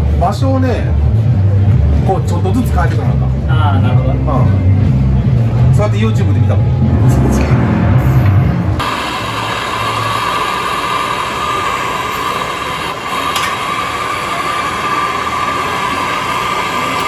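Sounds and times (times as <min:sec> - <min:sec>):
gas torch hissing: 0:08.8 - 0:17.0.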